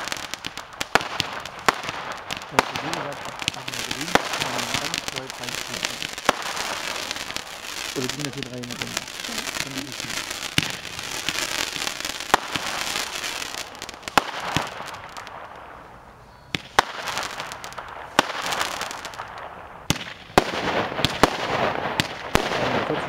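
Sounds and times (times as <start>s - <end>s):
firework bangs: 0.0s - 15.9s, 16.5s - 23.0s
hissing crackling fireworks: 0.0s - 23.0s.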